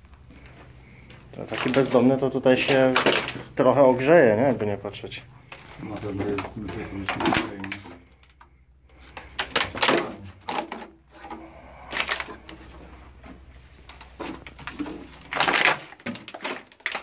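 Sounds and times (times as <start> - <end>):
footsteps crunching over rubble: 0.0 - 8.1.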